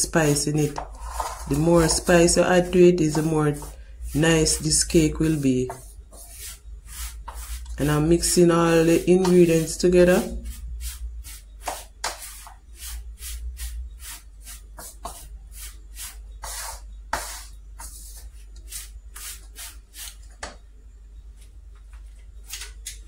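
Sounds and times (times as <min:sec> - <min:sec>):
wooden spoon scraping metal pan: 0:00.0 - 0:11.4.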